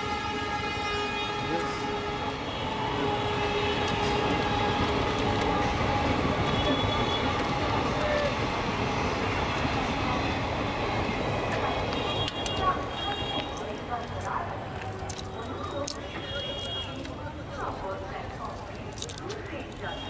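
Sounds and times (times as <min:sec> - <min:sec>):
train wheels rumbling: 0:01.8 - 0:14.8.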